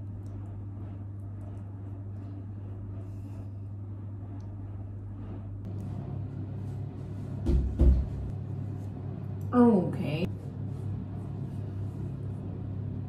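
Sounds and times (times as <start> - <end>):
steady low hum: 0.0 - 13.0
dull heavy thumps: 7.4 - 8.3.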